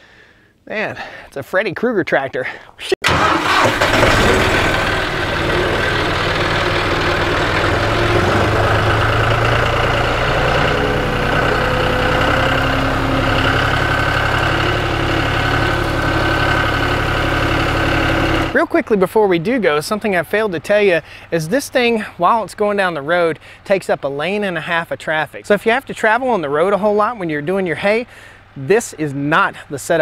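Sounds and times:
tractor diesel engine running: 0:03.0 - 0:18.6.

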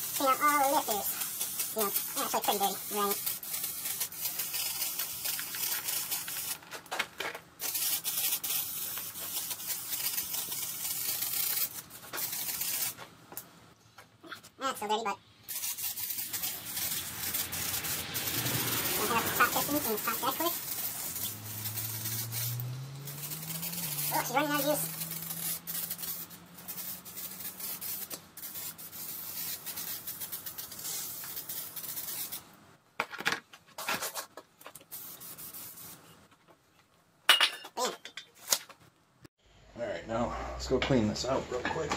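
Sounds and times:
aerosol can spraying: 0:00.0 - 0:06.6, 0:07.6 - 0:13.0, 0:15.5 - 0:32.4, 0:34.8 - 0:36.0
rag rubbing on metal: 0:15.5 - 0:30.6.

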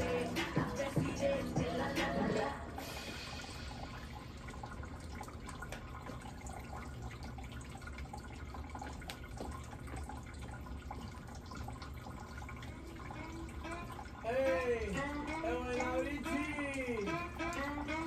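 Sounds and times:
dance music: 0:00.0 - 0:03.2, 0:13.2 - 0:18.0.

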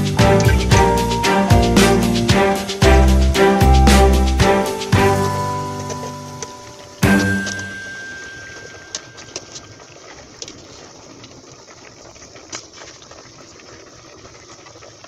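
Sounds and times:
water boiling in pot: 0:05.0 - 0:15.0.

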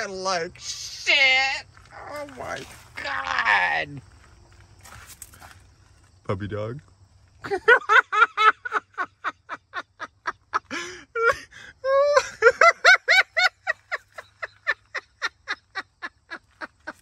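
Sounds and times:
person laughing hard: 0:07.4 - 0:17.0.

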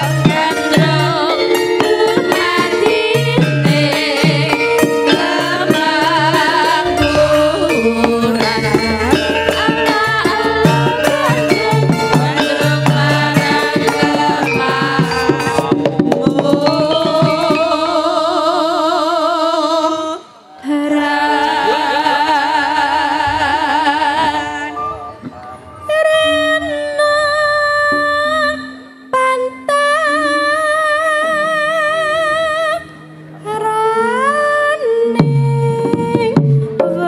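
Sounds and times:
hand drum strokes: 0:00.0 - 0:18.1
woman singing solo: 0:00.0 - 0:25.0
women singing in unison: 0:00.0 - 0:25.0, 0:25.8 - 0:37.0
gamelan ensemble: 0:00.0 - 0:37.0.

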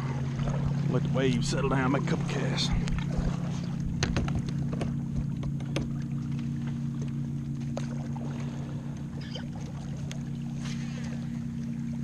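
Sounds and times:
steady low hum: 0:00.0 - 0:12.0
water lapping against kayak hull: 0:00.0 - 0:12.0
paddle and rod knocks: 0:02.8 - 0:06.4.

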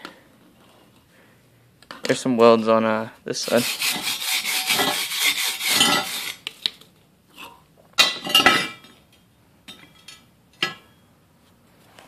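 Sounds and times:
scraping and rubbing: 0:03.4 - 0:06.6.

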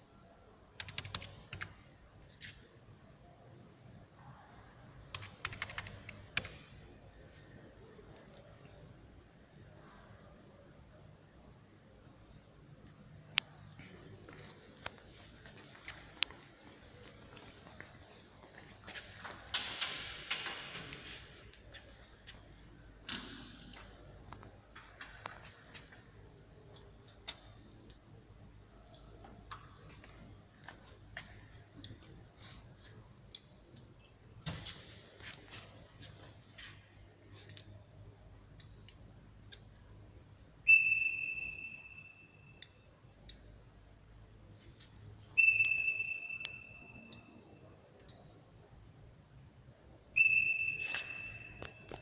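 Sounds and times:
electronic beeps: 0:40.7 - 0:42.9, 0:45.3 - 0:47.6, 0:50.1 - 0:52.0.

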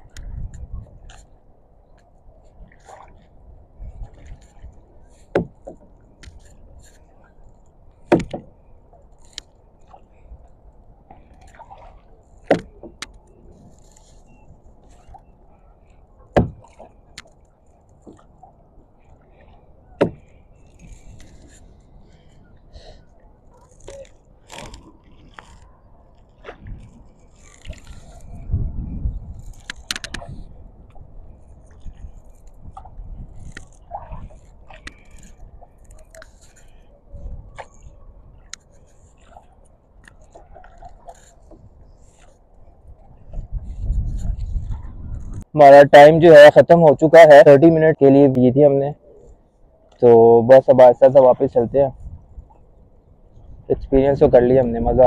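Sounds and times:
paddle splashing in water: 0:02.0 - 0:45.5
paddle knocking on kayak: 0:05.2 - 0:05.9, 0:08.0 - 0:08.5, 0:11.5 - 0:13.1, 0:16.3 - 0:16.9, 0:20.0 - 0:20.3.

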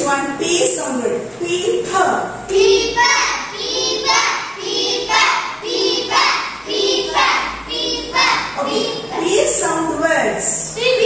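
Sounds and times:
children chanting in unison: 0:02.6 - 0:09.2.

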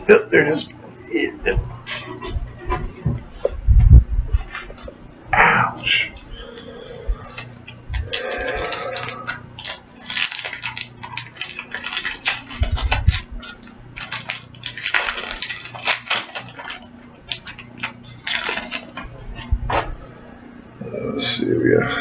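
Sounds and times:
low thumps: 0:01.5 - 0:05.0
wrapper crinkling and crackling: 0:07.2 - 0:19.5.

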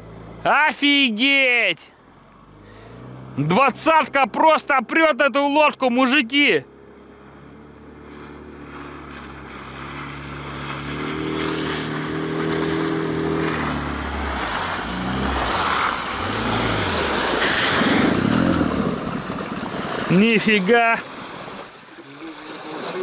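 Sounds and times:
outboard motor running: 0:06.4 - 0:21.8
water rushing and splashing: 0:08.0 - 0:23.0.

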